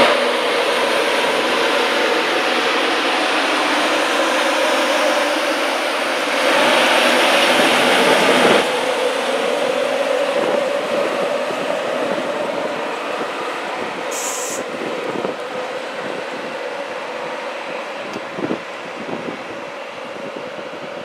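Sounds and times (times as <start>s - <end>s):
electric locomotive hum: 0.0s - 21.0s
high hiss: 14.1s - 14.7s.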